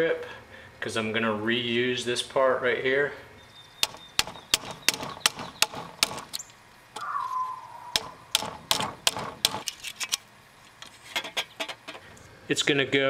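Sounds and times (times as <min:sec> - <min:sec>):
short squeal falling in pitch: 0:07.0 - 0:08.3
hammer tapping metal strip: 0:08.0 - 0:09.7.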